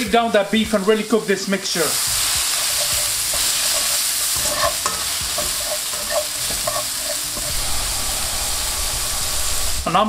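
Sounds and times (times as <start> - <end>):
meat sizzling in a frying pan: 0.0 - 9.9
spatula scraping a pan: 2.0 - 7.7.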